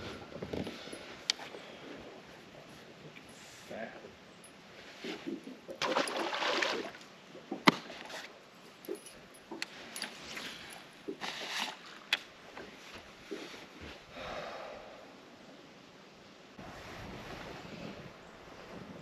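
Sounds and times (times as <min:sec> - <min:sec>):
fish splashing into water: 0:05.8 - 0:07.0.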